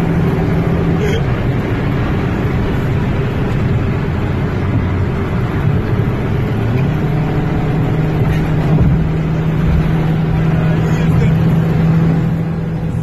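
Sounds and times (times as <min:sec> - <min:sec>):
car engine drone: 0:00.0 - 0:13.0
road noise: 0:00.0 - 0:13.0.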